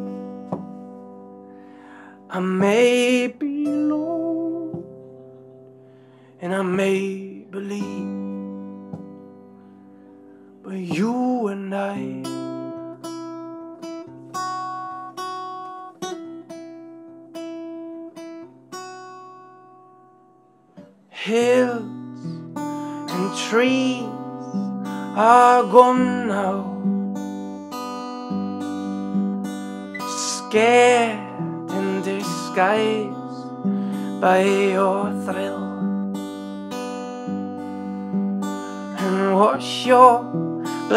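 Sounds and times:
acoustic guitar chords: 0:00.0 - 0:40.9
man singing: 0:02.2 - 0:04.9, 0:06.4 - 0:08.4, 0:10.6 - 0:12.6, 0:21.2 - 0:22.0, 0:23.0 - 0:26.9, 0:30.0 - 0:35.9, 0:38.9 - 0:40.9.

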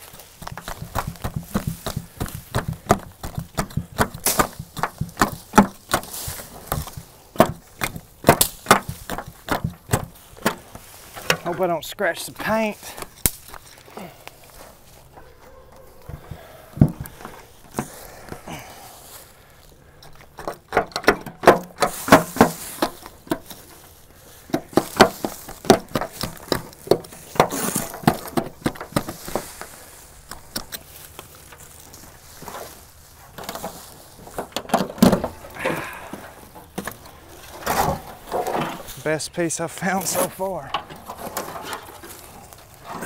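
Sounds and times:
sheet metal clanking and scraping: 0:36.2 - 0:39.0, 0:40.0 - 0:43.0.

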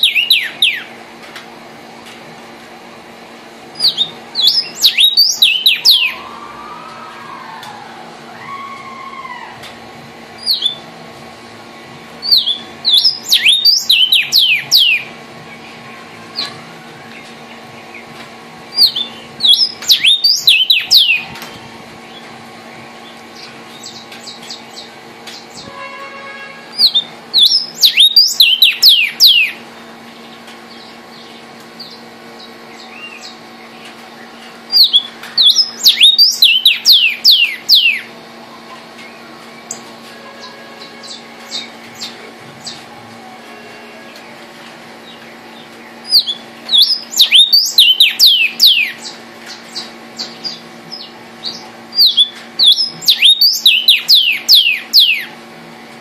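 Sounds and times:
bird whistling song: 0:00.0 - 0:00.9, 0:03.8 - 0:06.4, 0:10.4 - 0:10.8, 0:12.2 - 0:15.1, 0:18.8 - 0:21.3, 0:26.8 - 0:29.6, 0:34.7 - 0:38.1, 0:46.0 - 0:55.3.

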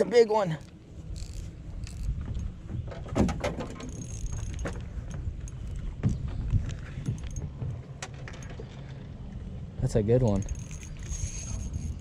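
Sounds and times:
fishing reel gears clicking: 0:00.4 - 0:02.2, 0:03.9 - 0:04.8, 0:10.3 - 0:12.0.

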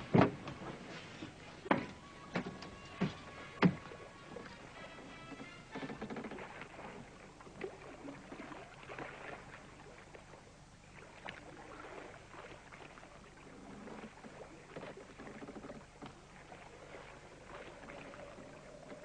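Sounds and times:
small knocks and rustles: 0:00.0 - 0:04.6
water lapping against boat hull: 0:00.0 - 0:19.0.

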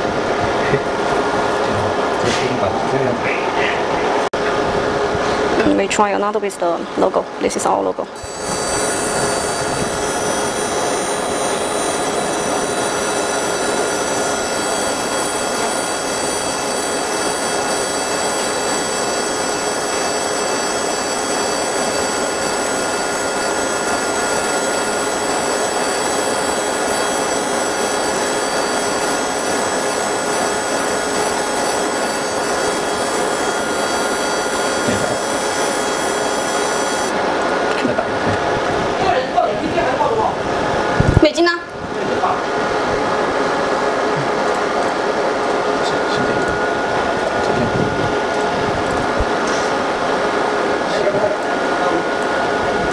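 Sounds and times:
high whining tones: 0:00.0 - 0:41.8
laser engraver hissing buzz: 0:08.1 - 0:37.2.

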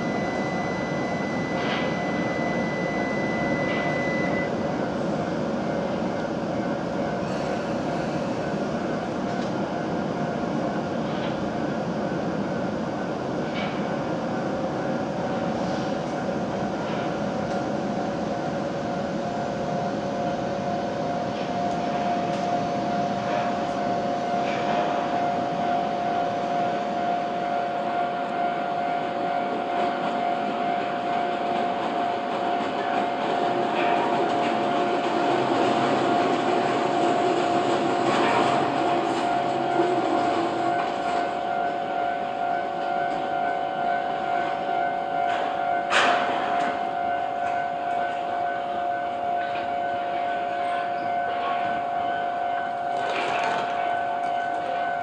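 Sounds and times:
train motor tones: 0:00.0 - 0:04.9
train electric running hum: 0:00.0 - 0:55.0
wheels rumbling on rail: 0:00.0 - 0:55.0.

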